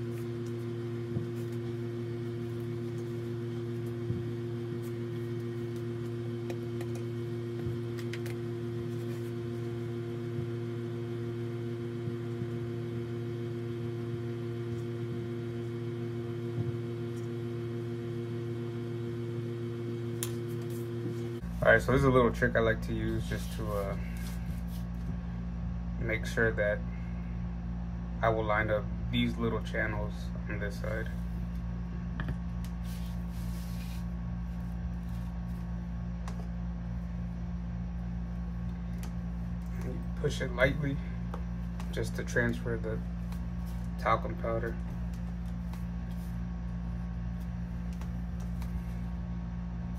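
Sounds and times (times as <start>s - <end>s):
low droning hum: 0.0s - 49.9s
soft rub: 32.8s - 35.7s.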